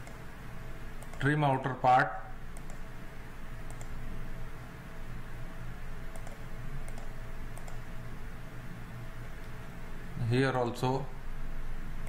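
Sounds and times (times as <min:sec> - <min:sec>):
computer mouse clicks: 0:00.0 - 0:00.3, 0:01.0 - 0:01.3, 0:02.5 - 0:02.9, 0:03.6 - 0:04.0, 0:06.1 - 0:07.9.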